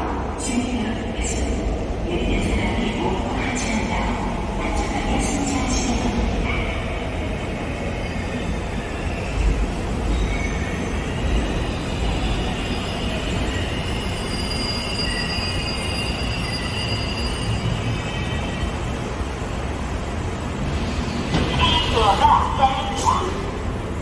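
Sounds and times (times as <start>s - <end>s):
electric train rumbling: 0.0s - 24.0s
wheels and brakes squealing: 8.8s - 18.7s.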